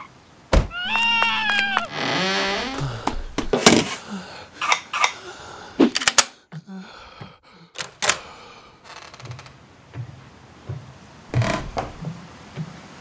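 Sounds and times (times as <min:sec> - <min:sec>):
footsteps thudding: 0:02.6 - 0:04.0, 0:09.9 - 0:12.7.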